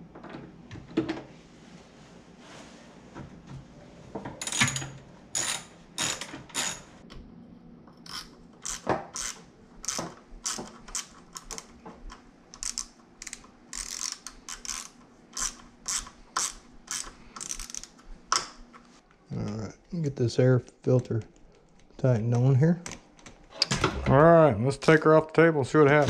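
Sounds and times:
socket ratchet clicking: 8.1 - 11.7, 12.6 - 18.5.

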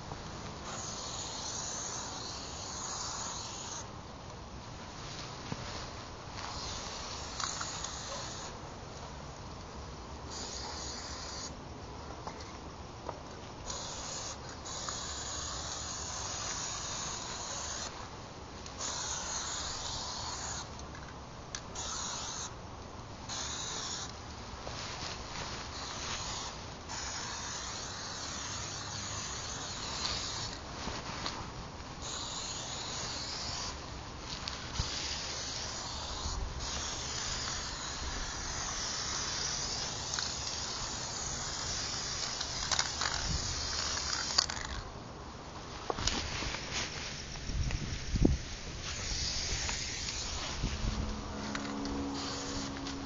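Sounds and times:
spray paint can hissing: 0.6 - 3.9, 6.4 - 8.6, 10.3 - 11.5, 13.6 - 18.0, 18.7 - 20.8, 21.7 - 22.5, 23.3 - 24.2, 25.6 - 30.6, 32.0 - 44.8, 48.8 - 53.0.

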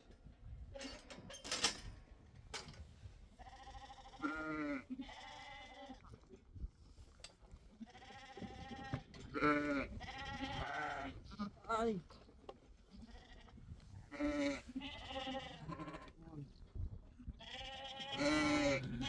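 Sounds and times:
sheep bleating: 3.4 - 6.0, 7.8 - 11.5, 13.1 - 13.5, 14.1 - 16.1, 17.4 - 19.0.

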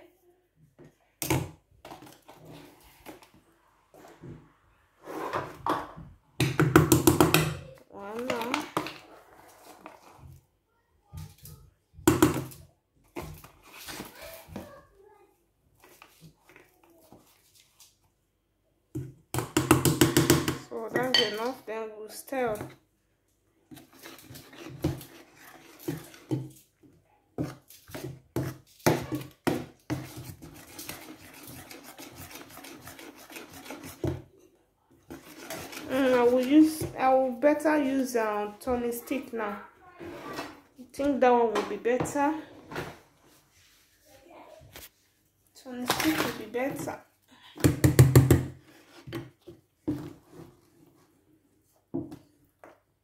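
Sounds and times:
metal spoon scraping a pot: 23.7 - 26.4, 27.9 - 34.3, 35.1 - 37.0.

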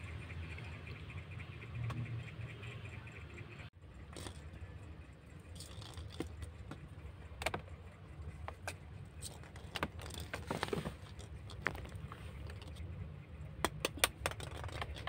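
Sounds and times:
low steady hum: 0.0 - 15.0
paws and ball clicking on tiles: 4.0 - 12.9, 13.5 - 15.0.

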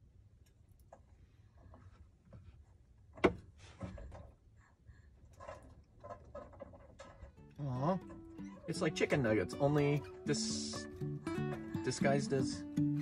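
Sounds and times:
rustling and clicks of food: 0.3 - 8.8.

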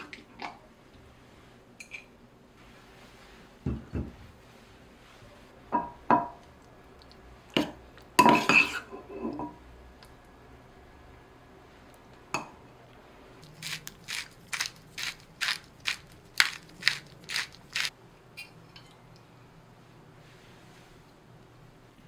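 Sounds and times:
pepper grinder rasping: 13.4 - 17.9.

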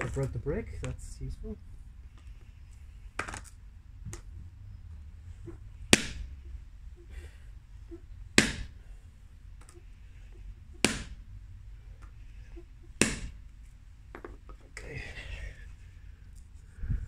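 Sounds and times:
hammer striking resin disc: 5.9 - 6.4, 8.4 - 8.8, 10.8 - 11.2, 13.0 - 13.4.

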